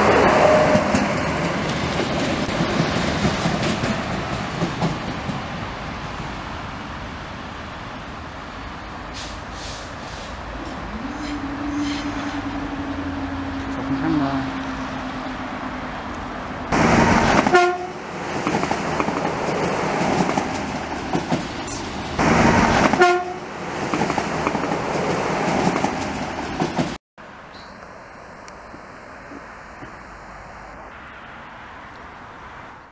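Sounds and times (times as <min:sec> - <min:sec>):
train running noise: 0:00.0 - 0:27.0
train horn blasts: 0:10.6 - 0:15.4, 0:17.3 - 0:18.0, 0:22.9 - 0:23.5.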